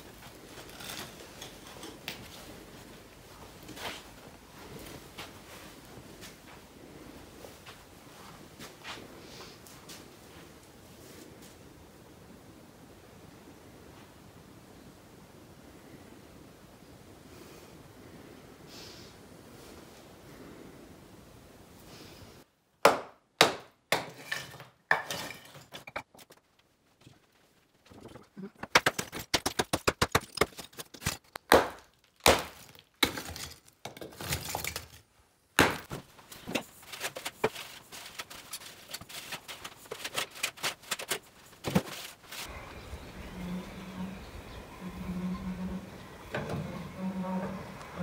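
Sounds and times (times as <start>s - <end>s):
brick rubble clattering: 23.9s - 26.3s, 27.9s - 42.6s.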